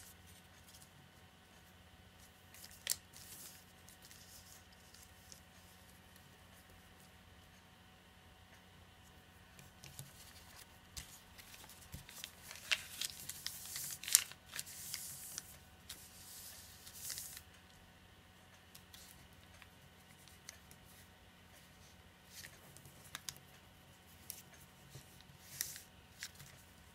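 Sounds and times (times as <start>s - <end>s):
paper rustling and crinkling: 2.5s - 5.6s, 9.8s - 17.5s, 24.1s - 26.8s.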